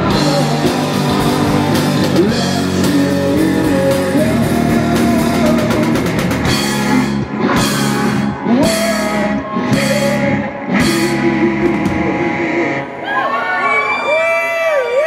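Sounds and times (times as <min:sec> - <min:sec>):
heavy metal band playing: 0:00.0 - 0:13.7.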